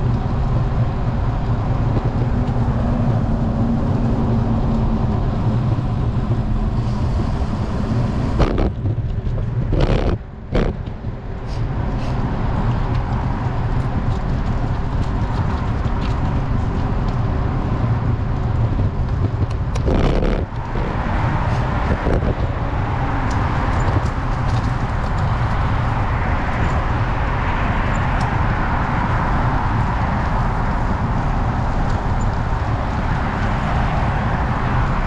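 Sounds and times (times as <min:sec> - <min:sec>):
bicycle road noise: 0:00.0 - 0:35.0
wind rushing over microphone: 0:00.0 - 0:35.0.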